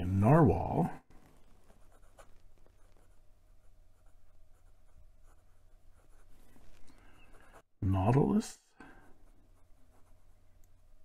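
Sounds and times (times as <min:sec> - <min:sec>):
fountain pen scratching on paper: 0:01.3 - 0:06.8, 0:09.6 - 0:10.4.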